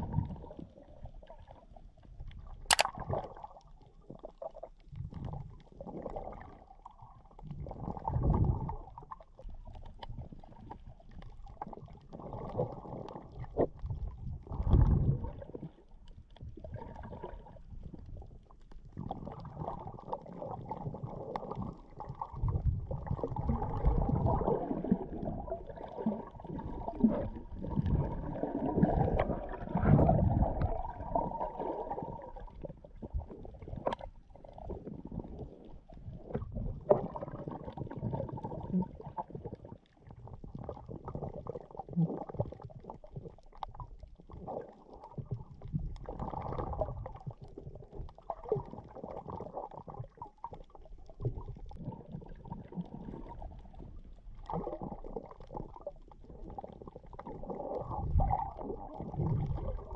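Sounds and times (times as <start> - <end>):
underwater rumbling and gurgling: 0.0 - 59.9
sharp clicks: 2.7 - 3.0.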